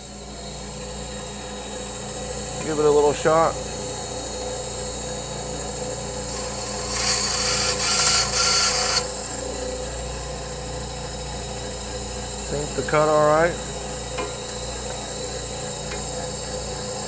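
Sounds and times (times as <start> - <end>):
bandsaw humming: 1.1 - 17.0
saw blade cutting wood: 5.6 - 9.6.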